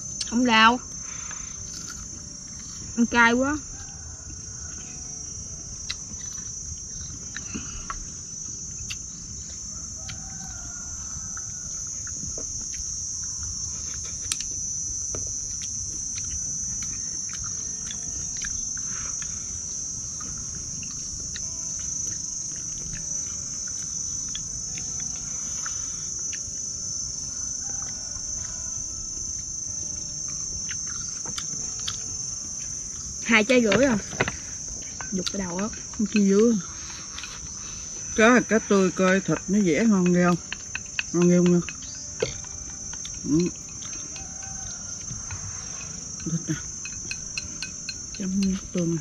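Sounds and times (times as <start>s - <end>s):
insects droning: 0.0s - 49.0s
chopsticks tapping bowls: 39.0s - 49.0s.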